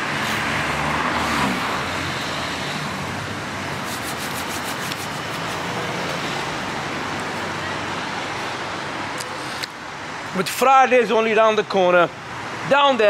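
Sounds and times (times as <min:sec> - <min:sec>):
vehicle engine drone passing: 0:00.0 - 0:08.9
road traffic passing: 0:00.0 - 0:13.0.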